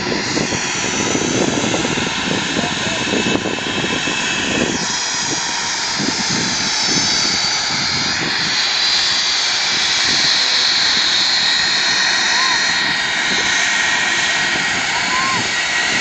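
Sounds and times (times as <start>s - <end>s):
jet engines whining: 0.0s - 16.0s.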